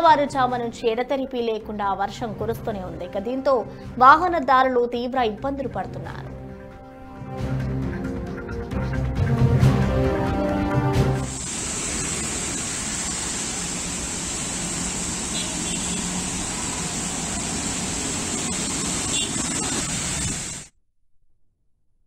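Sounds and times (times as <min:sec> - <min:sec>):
rain on a wet road: 0:11.3 - 0:20.6
passing motor traffic: 0:11.7 - 0:20.6.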